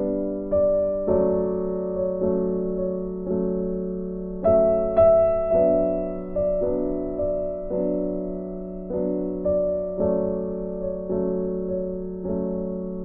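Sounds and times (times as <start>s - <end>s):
gentle keyboard music: 0.0s - 13.0s.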